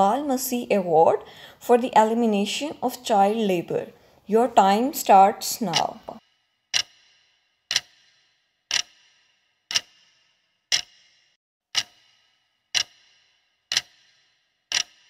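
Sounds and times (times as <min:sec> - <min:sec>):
clock ticks with ringing tail: 0:05.6 - 0:15.0.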